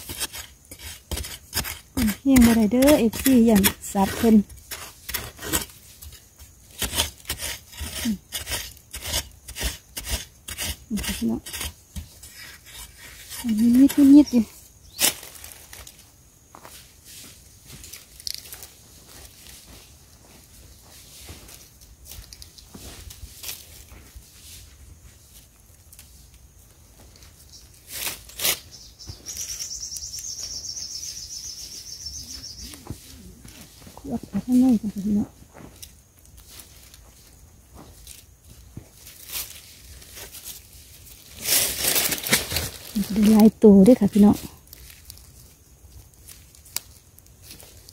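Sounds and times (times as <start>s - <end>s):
spade chopping sandy soil: 0.0s - 14.4s.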